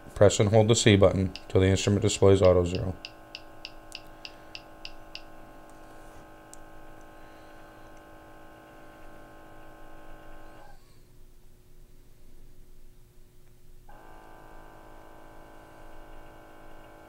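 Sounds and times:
sample pump humming: 0.0 - 10.6
quick device ticks: 1.3 - 1.6, 2.4 - 5.3.

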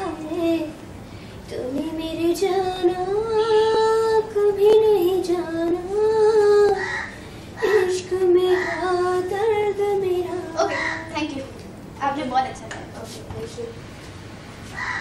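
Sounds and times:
woman singing unaccompanied: 0.0 - 0.8, 1.4 - 11.6.

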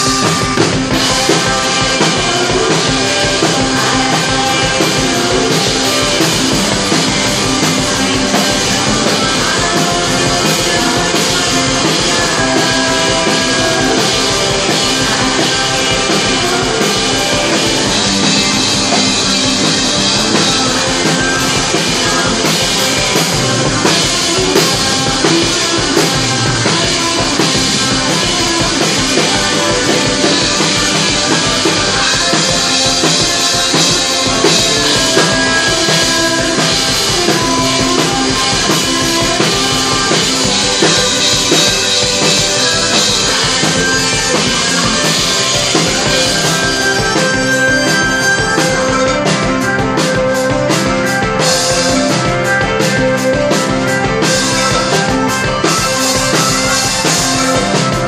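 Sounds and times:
drum kit beat: 0.0 - 58.0
electric guitar: 0.0 - 58.0.

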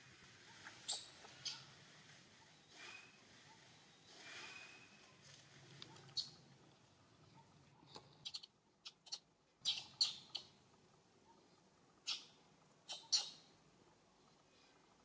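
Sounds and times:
baby monkey squeaking: 0.8 - 1.6, 8.2 - 10.5, 12.9 - 13.4.

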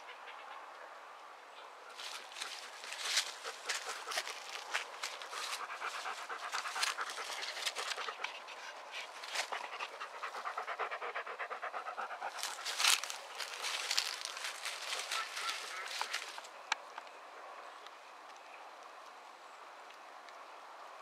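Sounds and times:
rustle: 0.0 - 21.0
dog panting fast: 2.4 - 16.3.

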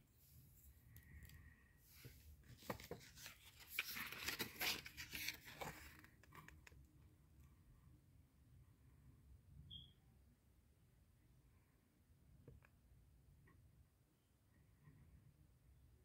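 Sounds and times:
plastic and paper rustling: 2.1 - 6.6.

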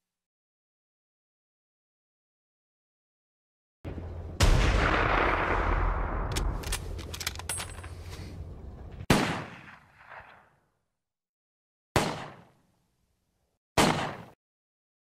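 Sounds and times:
gunshots: 4.4 - 7.1, 9.0 - 10.5, 12.0 - 12.6, 13.8 - 14.4
sharp clicks: 6.2 - 7.9.

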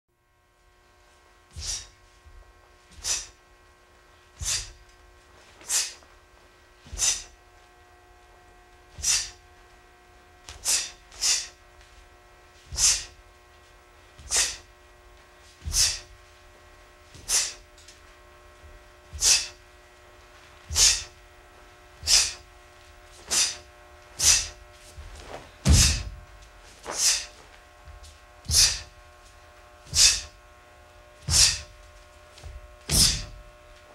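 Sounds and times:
faint steady hum: 0.1 - 33.9
sharp exhalations: 1.5 - 2.0, 3.0 - 3.4, 4.4 - 4.8, 5.6 - 6.0, 6.9 - 7.4, 9.0 - 9.4, 10.6 - 11.6, 12.7 - 13.2, 14.2 - 14.7, 15.6 - 16.1, 17.2 - 17.6, 19.2 - 19.6, 20.7 - 21.2, 22.0 - 22.4, 23.2 - 24.6, 26.9 - 27.4, 28.5 - 28.9, 29.9 - 30.4, 31.3 - 31.7, 32.9 - 33.3.

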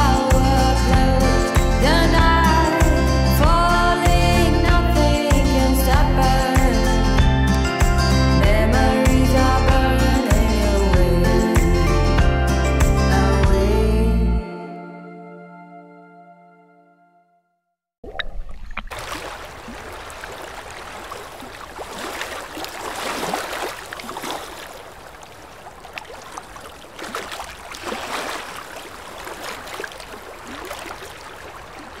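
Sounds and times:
sea water lapping and splashing: 18.0 - 32.0.

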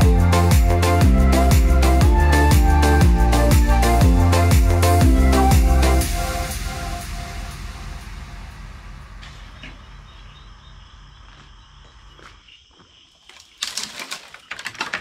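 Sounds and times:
background music with slow beat: 0.0 - 9.8
sudden burst of noise: 6.5 - 10.4
insects chirring: 9.2 - 15.0.

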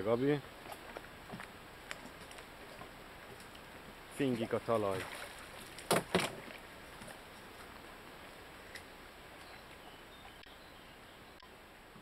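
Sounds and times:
faint background hiss: 0.0 - 12.0
light ticks: 10.4 - 10.6.

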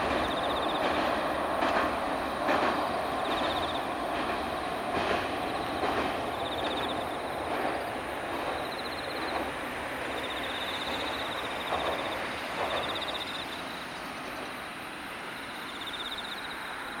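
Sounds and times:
railcar rumbling across steel bridge: 0.0 - 17.0.

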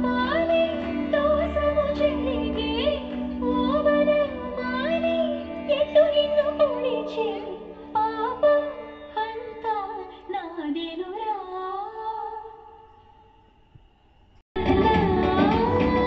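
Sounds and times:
music accompaniment: 0.0 - 10.0, 14.6 - 16.0.

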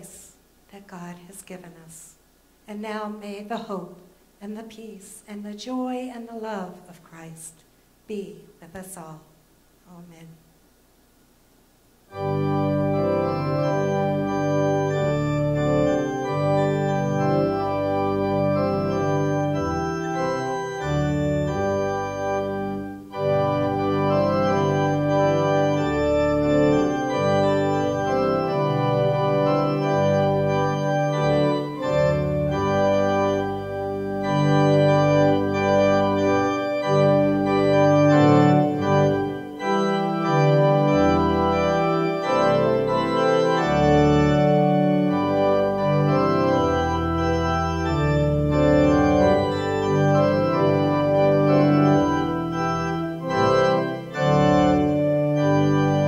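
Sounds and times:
organ playing chords: 12.0 - 56.0.

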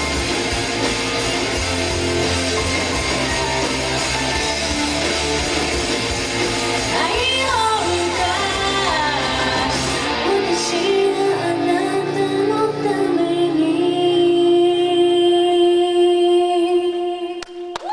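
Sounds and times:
rock music accompaniment: 0.0 - 13.2
woman singing: 6.9 - 17.9.

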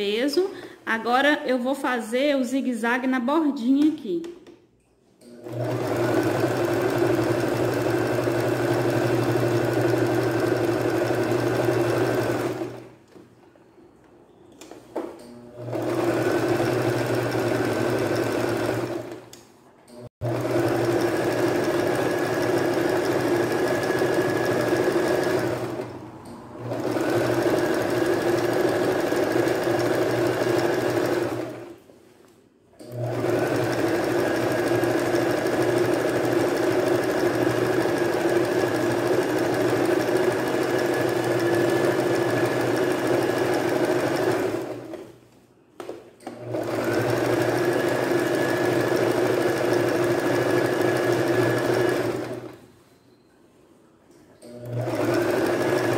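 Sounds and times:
electric sewing machine running: 5.3 - 12.9, 15.3 - 19.3, 20.0 - 31.8, 32.8 - 45.1, 46.3 - 52.6, 54.5 - 55.9.

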